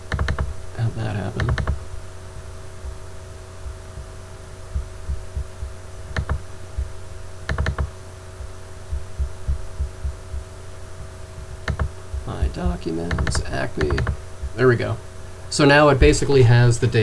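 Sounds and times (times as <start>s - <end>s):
electrical hum: 0.0s - 17.0s
computer mouse clicks: 0.1s - 0.5s, 1.4s - 1.8s, 6.1s - 6.4s, 7.5s - 7.9s, 11.6s - 11.9s, 13.1s - 14.2s
low thumps: 2.8s - 14.7s.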